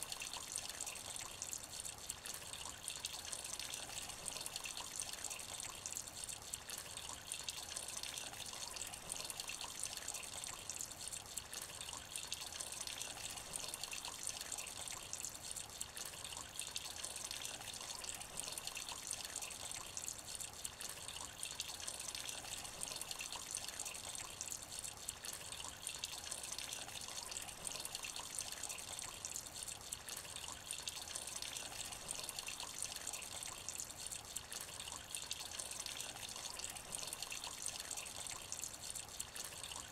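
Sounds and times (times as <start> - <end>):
rain falling into puddle: 0.0 - 39.9.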